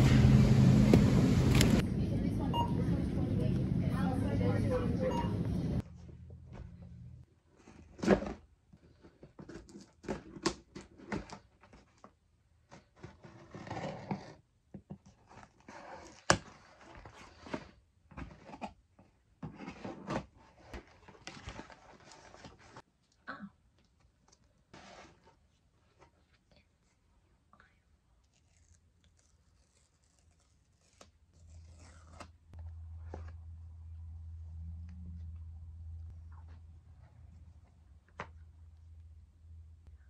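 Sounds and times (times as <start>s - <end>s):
cardboard and tape rustling: 0.9s - 1.8s, 7.4s - 22.9s, 23.9s - 26.5s, 28.2s - 33.6s
scissors cutting cardboard: 12.7s - 14.4s.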